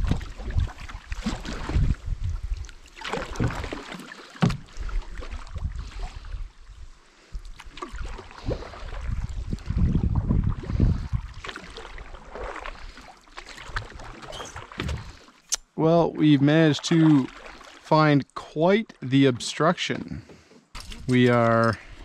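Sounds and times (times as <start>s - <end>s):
wind rumbling on microphone: 0.0s - 3.8s, 4.4s - 13.0s
paddle splashing in water: 0.0s - 6.3s, 7.5s - 15.5s, 16.8s - 17.9s.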